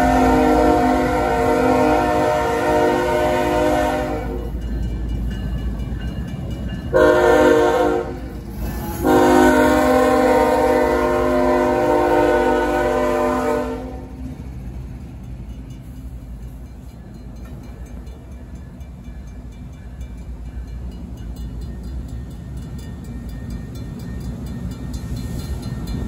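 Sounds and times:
locomotive air horn blasts: 0.0 - 4.5, 6.9 - 14.2.

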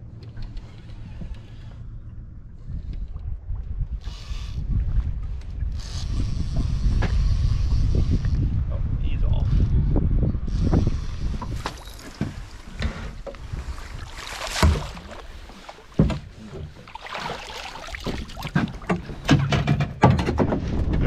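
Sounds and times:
wind rumble on microphone: 0.0 - 21.0
knocks and thuds on boat: 10.6 - 21.0.

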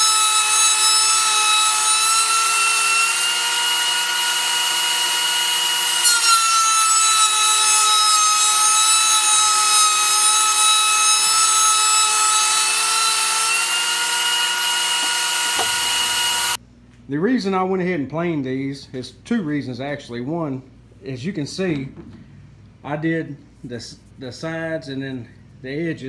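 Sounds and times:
thickness planer shaving wood: 0.0 - 16.6.

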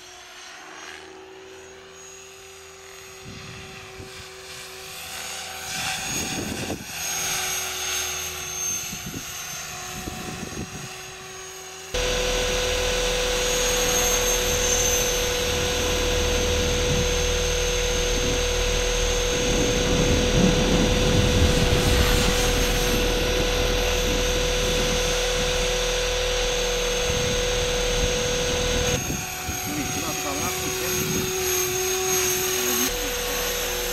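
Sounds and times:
model aircraft buzzing: 0.0 - 33.9
motor whine: 0.0 - 33.9
wind rush: 12.0 - 33.8.

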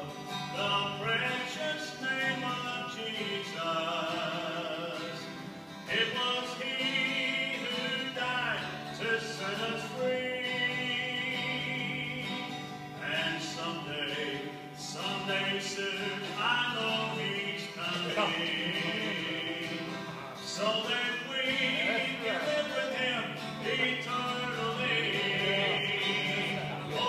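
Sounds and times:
acoustic guitar: 0.0 - 27.0
voices singing slow song: 0.0 - 27.0.

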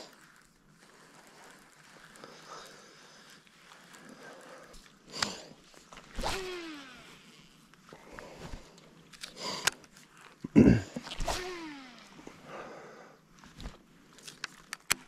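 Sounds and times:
rod and reel handling: 0.0 - 12.4, 13.2 - 15.0
fishing line whining off spool: 3.8 - 9.2, 11.0 - 12.5.

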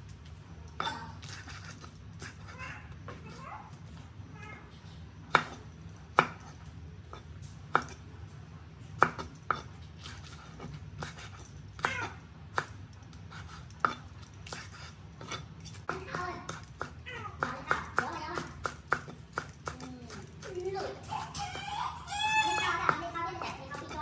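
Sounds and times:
cleaver chopping on wooden board: 6.2 - 6.5, 9.0 - 12.8, 13.8 - 20.4.

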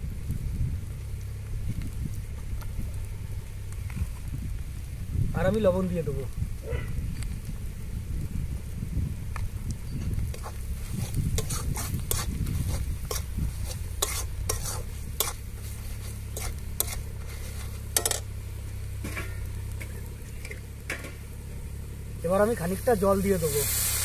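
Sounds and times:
low sizzle: 0.0 - 24.0
steady low hum: 6.2 - 23.5
spatula scraping a pan: 10.3 - 18.3.

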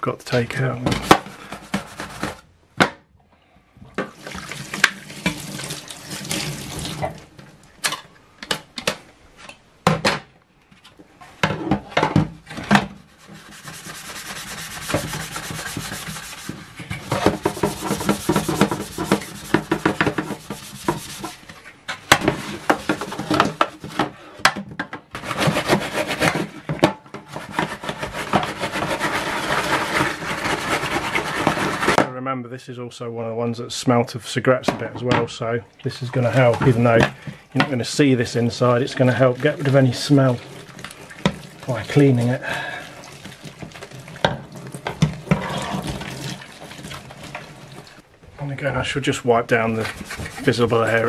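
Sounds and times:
scrubbing plastic with sponge: 1.0 - 2.5, 4.1 - 7.3, 13.0 - 24.0, 25.2 - 32.0, 37.6 - 48.0, 49.3 - 51.0
water sloshing and dripping: 3.9 - 8.1, 13.1 - 24.0, 34.8 - 48.1.

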